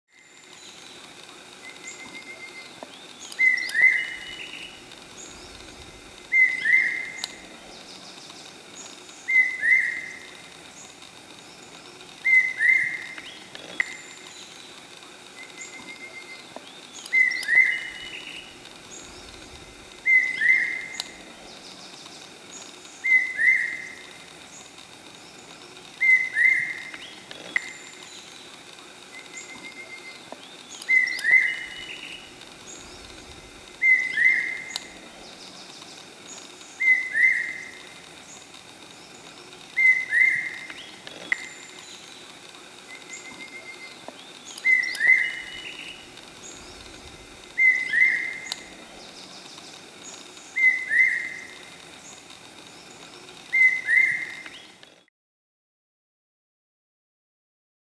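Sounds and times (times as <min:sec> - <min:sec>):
faint bird chirps: 0:00.1 - 0:55.1.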